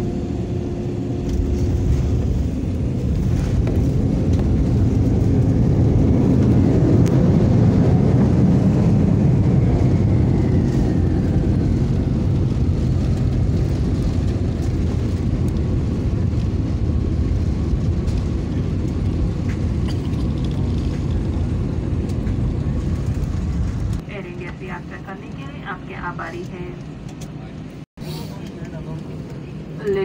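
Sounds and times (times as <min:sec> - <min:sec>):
jet engine whine winding down: 0:00.0 - 0:23.9
jet engine rumble: 0:00.0 - 0:30.0.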